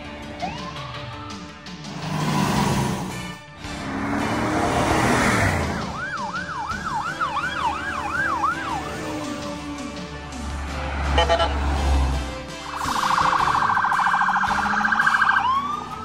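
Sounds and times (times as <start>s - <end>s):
vehicle noise: 0.0s - 16.0s
electronic siren yelping: 0.4s - 1.0s, 5.6s - 8.9s, 11.2s - 11.7s, 12.5s - 16.0s.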